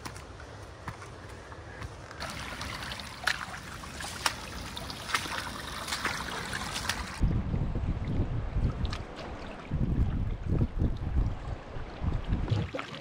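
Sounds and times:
footsteps snapping on trail: 0.0s - 2.2s
canoe paddle stroking water: 2.2s - 7.2s
water trickling over rock: 2.2s - 7.2s
wind buffeting microphone: 7.1s - 12.6s.

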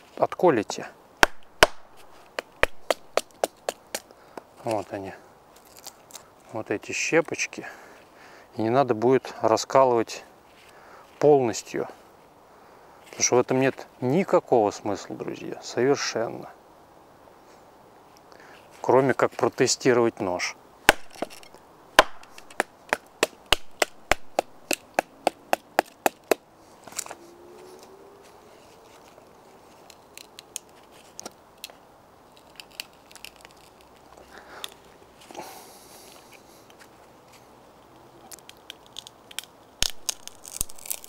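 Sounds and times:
rustles: 0.0s - 41.0s
wood splitting with cracks: 1.2s - 4.1s, 20.9s - 27.1s, 38.3s - 41.0s
baton knocking knife into log: 20.9s - 26.4s.

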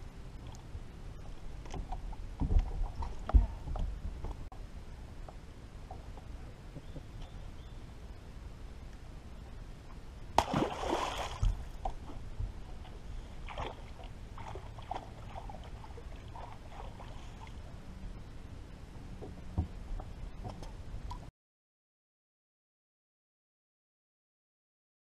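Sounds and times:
water splashing against boat: 10.4s - 17.7s.

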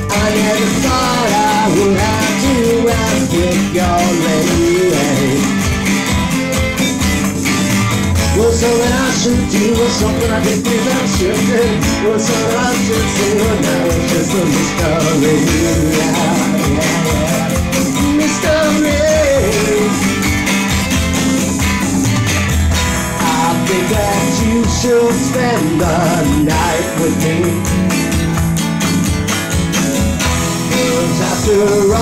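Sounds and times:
rock band playing live: 0.0s - 32.0s.

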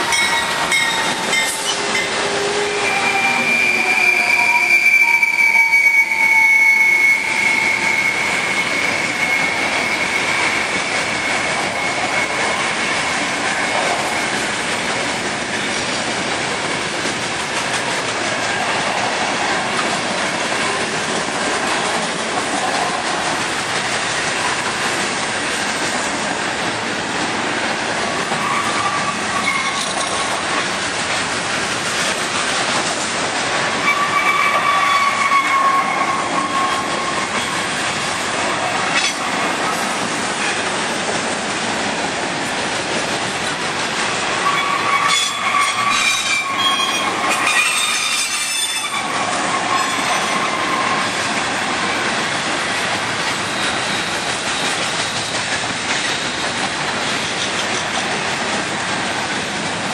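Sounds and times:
high wheel squeals: 0.0s - 14.4s, 28.3s - 30.1s, 33.8s - 38.1s, 44.4s - 51.3s
freight train wheels rumbling: 0.0s - 59.9s.

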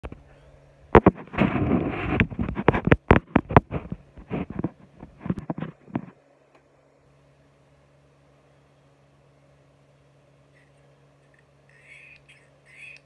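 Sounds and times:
rustle of phone handling: 1.0s - 6.2s.

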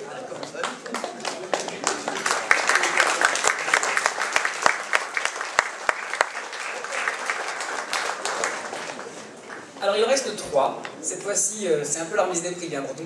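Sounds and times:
audience applauding: 0.4s - 9.8s.

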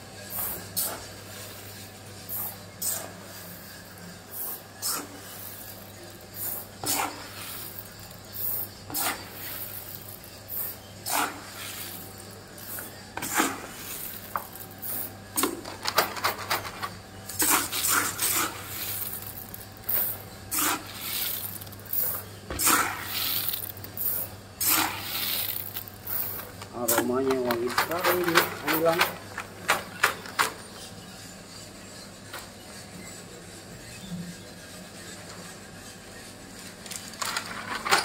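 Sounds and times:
roaster motor hum: 0.0s - 38.0s
beans clattering in drum: 4.3s - 30.6s, 36.7s - 38.0s.

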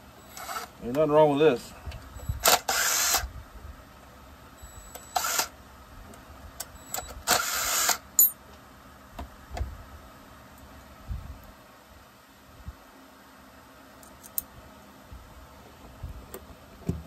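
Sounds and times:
cordless drill spinning: 0.2s - 0.8s, 2.2s - 3.3s, 4.8s - 5.6s, 6.8s - 8.0s.

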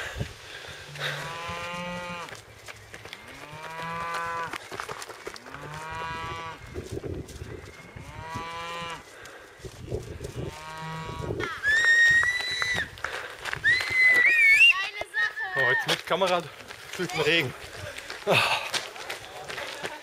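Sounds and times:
cattle mooing: 0.9s - 2.3s, 5.4s - 6.6s, 7.8s - 9.0s, 10.5s - 11.3s.

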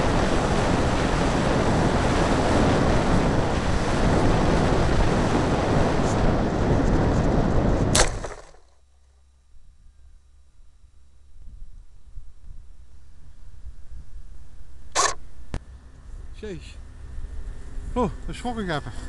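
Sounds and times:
model plane crashing into grass: 7.8s - 8.7s.

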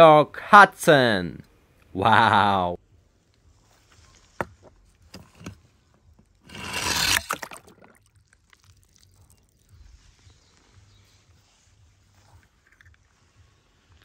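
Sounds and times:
toy car sliding down plastic chute: 6.5s - 7.3s.

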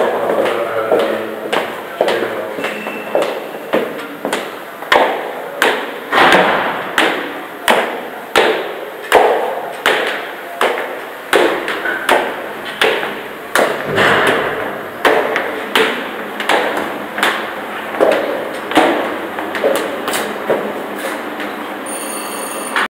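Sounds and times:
high heels on stone stairs: 0.0s - 5.8s, 15.0s - 21.5s.

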